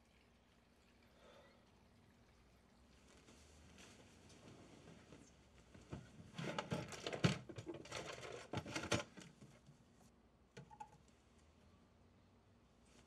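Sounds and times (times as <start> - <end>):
rummaging through objects and packaging: 5.8 - 9.6.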